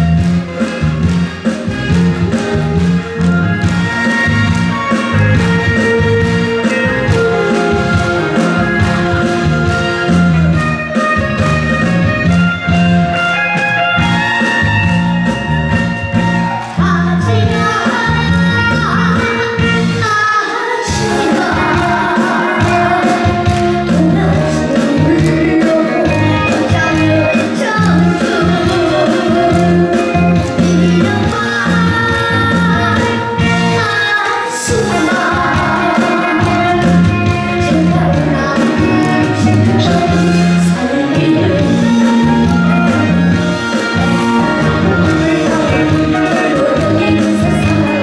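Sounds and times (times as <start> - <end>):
instrumental accompaniment with bass: 0.0 - 48.0
trot song with backing band: 0.0 - 48.0
boy singing: 16.8 - 42.4, 44.6 - 48.0.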